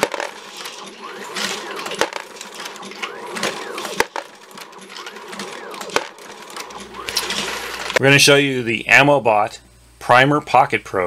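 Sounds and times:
motor whir rising and falling: 0.0 - 8.0.

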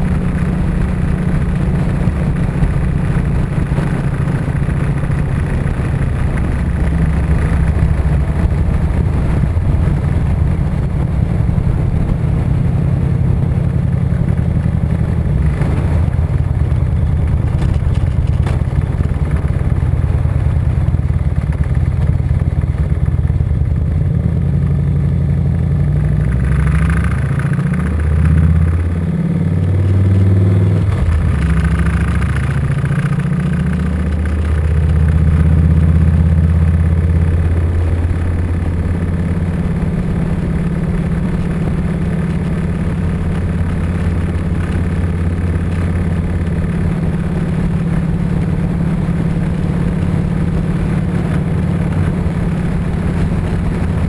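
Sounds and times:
motorcycle engine accelerating: 0.0 - 54.0.

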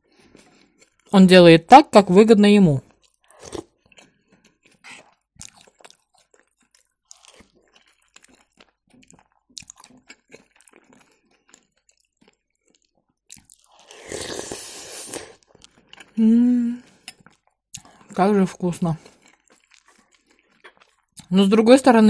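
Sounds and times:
quiet chewing: 0.0 - 1.1, 2.9 - 16.2, 16.8 - 21.3
person slurping: 13.7 - 18.2.

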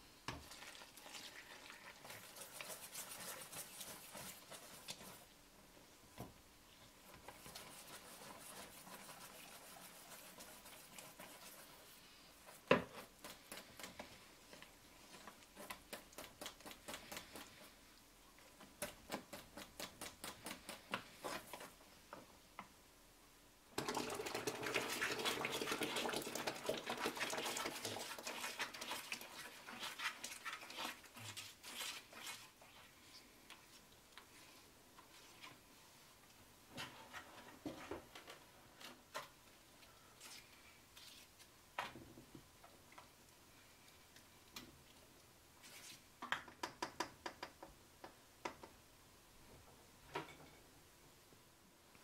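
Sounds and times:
stirring batter in a bowl: 0.3 - 5.4, 6.7 - 21.8, 23.8 - 34.3
water pouring onto flour: 0.4 - 3.0, 23.8 - 32.4.

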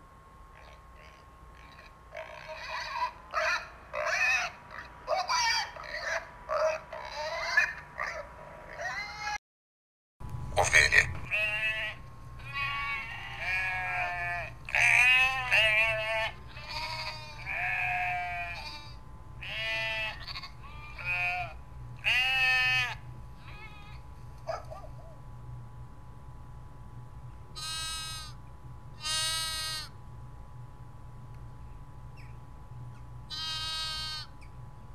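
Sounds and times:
sheep bleating: 0.6 - 4.8, 10.7 - 24.0, 27.6 - 28.4, 29.0 - 29.9, 33.3 - 34.3.

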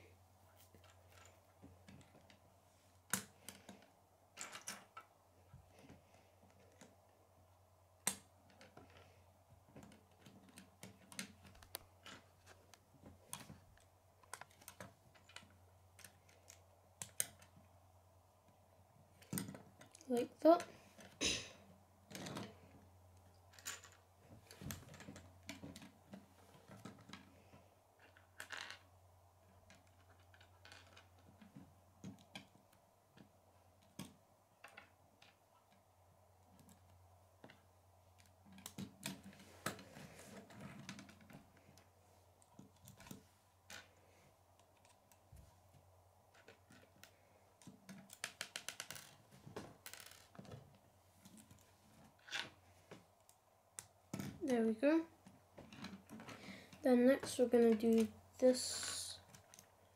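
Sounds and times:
plastic pieces clicking together: 46.3 - 49.2.

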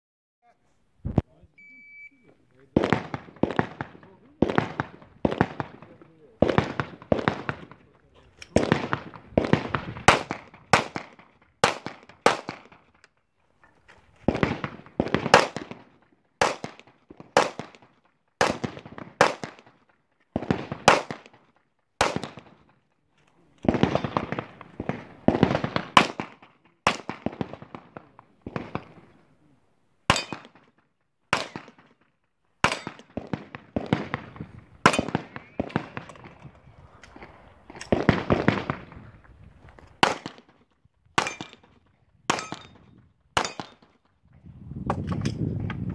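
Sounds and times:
pistol shots echoing: 2.7 - 7.8, 8.5 - 12.9, 14.3 - 19.8, 20.4 - 21.4, 22.0 - 22.7, 23.6 - 29.2, 30.1 - 30.7, 31.3 - 32.0, 32.6 - 36.5, 37.1 - 39.0, 40.0 - 40.6, 41.2 - 44.0.

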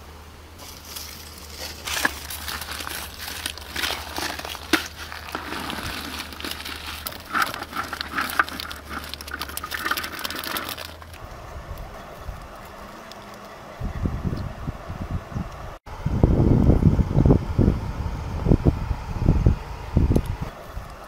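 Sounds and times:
egg shells clattering together: 0.6 - 11.2.

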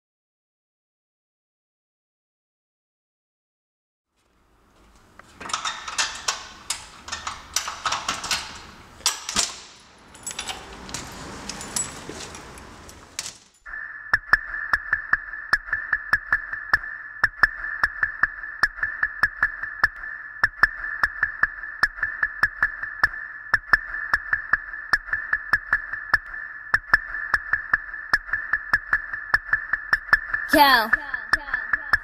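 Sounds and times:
jangling and rustling handling: 4.8 - 13.7.

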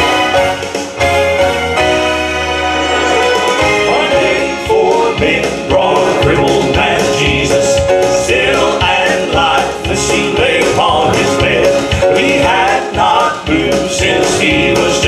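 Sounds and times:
instrumental accompaniment with beat: 0.0 - 15.0
male vocal trio singing gospel: 3.8 - 15.0.

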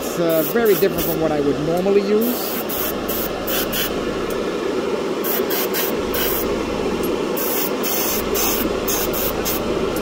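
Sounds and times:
steady low hum: 0.0 - 10.0
airbrush hissing bursts: 0.3 - 1.3, 2.2 - 4.0, 5.2 - 6.5, 7.3 - 9.7.

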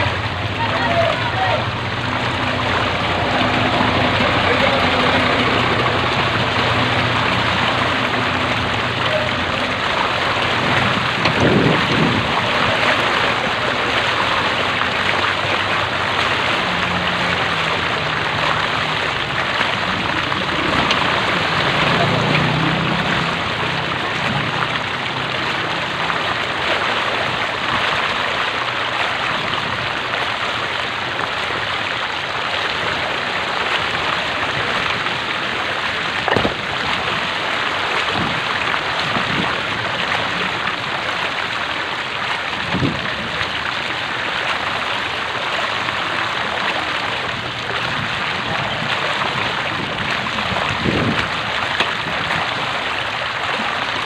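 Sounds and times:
floodwater sloshing and rushing: 0.0 - 54.0
thumps and splashes in water: 0.0 - 54.0.

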